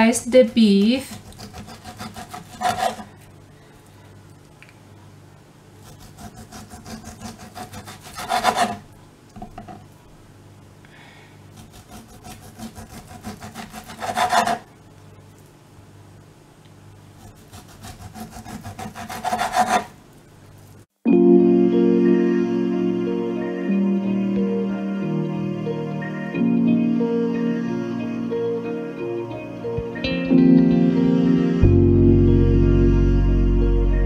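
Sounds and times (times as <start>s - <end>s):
knife sawing through raw meat: 0.6s - 3.1s, 5.8s - 8.8s, 11.5s - 14.6s, 17.2s - 19.9s.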